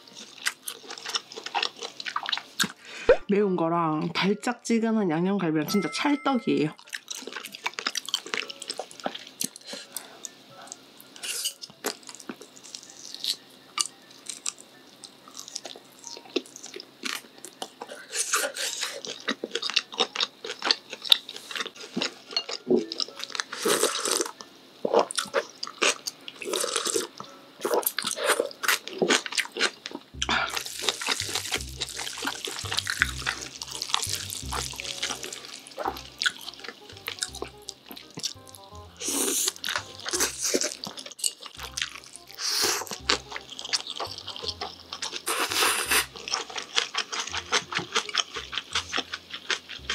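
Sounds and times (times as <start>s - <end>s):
chewing and slurping noodles: 0.0s - 2.8s, 6.8s - 49.9s
background music with bass: 30.2s - 40.7s, 41.6s - 46.4s, 47.3s - 49.9s.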